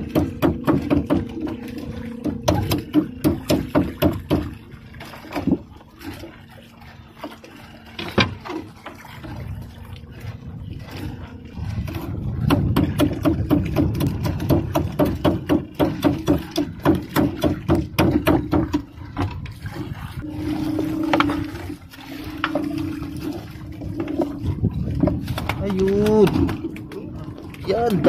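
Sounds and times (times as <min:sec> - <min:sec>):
wet net and rope knocking on hull: 0:00.0 - 0:06.4, 0:07.2 - 0:09.5, 0:10.9 - 0:28.0
low steady hum: 0:00.0 - 0:28.0
low rumble: 0:18.8 - 0:28.0.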